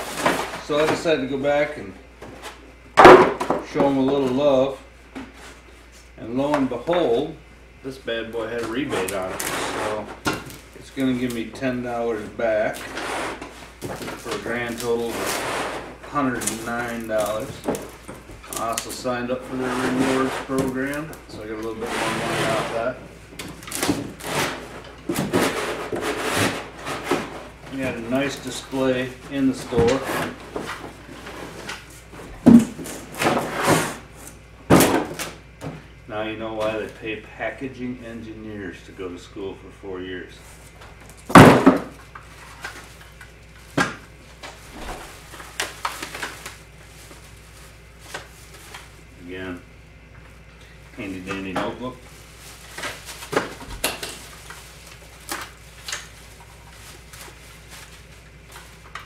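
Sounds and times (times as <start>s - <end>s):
plastic packaging rustling: 42.2s - 49.1s, 51.0s - 59.0s.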